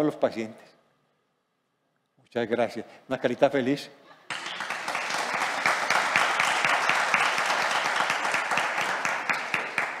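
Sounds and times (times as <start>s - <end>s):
audience applauding: 4.3s - 10.0s.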